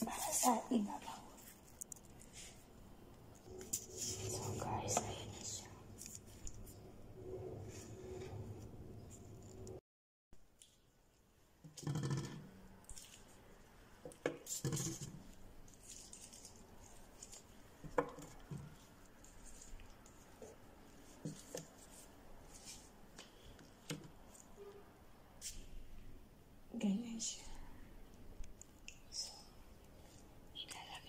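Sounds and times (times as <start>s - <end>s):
soft rustling: 15.1s - 24.6s.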